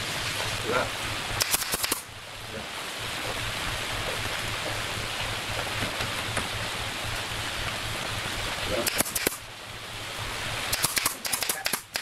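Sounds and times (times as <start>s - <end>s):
background hiss: 0.0s - 12.0s
sharp clicks: 1.4s - 2.0s, 8.8s - 9.4s, 10.7s - 12.0s.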